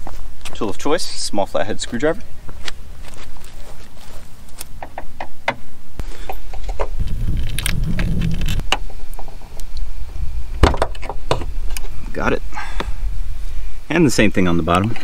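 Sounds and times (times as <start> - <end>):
low rumble of handling: 2.2 - 12.0.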